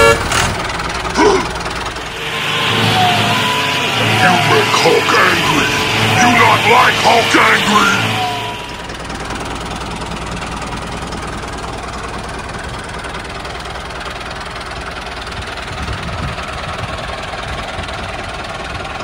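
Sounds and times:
small tractor engine running: 0.0s - 19.0s.

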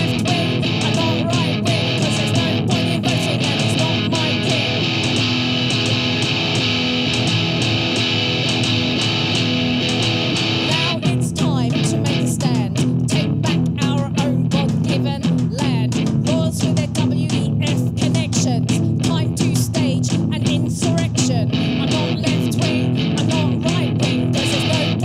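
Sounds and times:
woman singing lead vocal: 0.0s - 6.3s, 10.6s - 25.0s
distorted electric guitar: 0.0s - 25.0s
drums: 0.0s - 25.0s.

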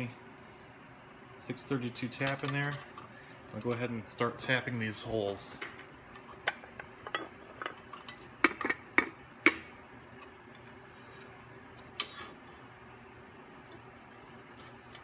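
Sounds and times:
metal tin and wrench clinking: 2.2s - 3.0s.

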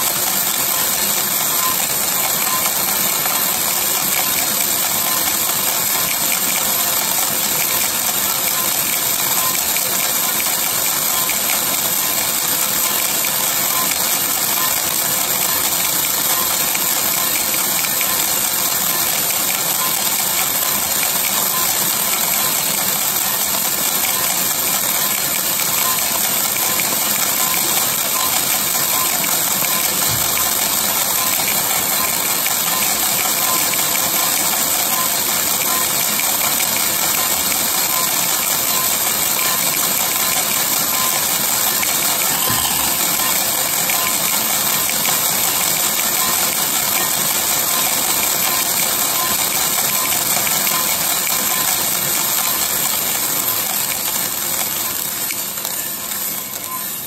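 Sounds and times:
coffee beans rattling in drum: 0.0s - 56.8s
roaster machine running: 0.0s - 57.0s.

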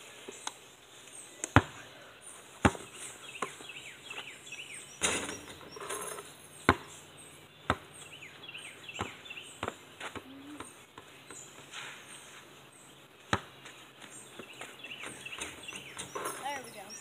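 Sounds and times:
birds chirping: 0.0s - 17.0s
basketball bouncing on hard ground: 1.5s - 1.8s, 2.6s - 4.4s, 5.0s - 11.7s, 13.2s - 16.8s.

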